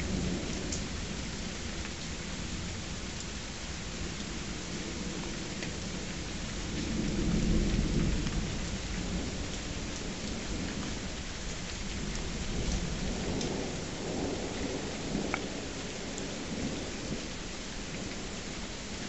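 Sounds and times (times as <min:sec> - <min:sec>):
raindrops ticking: 0:00.0 - 0:19.0
steady rain: 0:00.0 - 0:19.0
thunder rumbling: 0:06.6 - 0:18.4.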